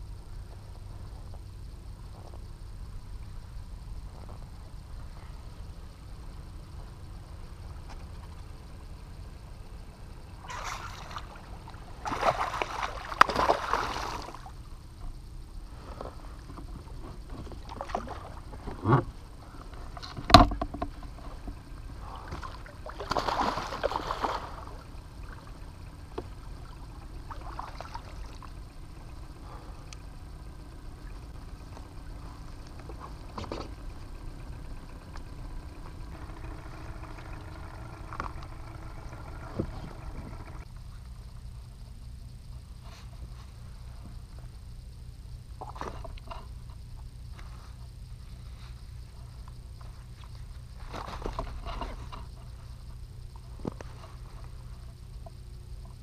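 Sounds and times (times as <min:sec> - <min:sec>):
fish thrashing and splashing: 0:10.5 - 0:14.4, 0:22.3 - 0:24.8.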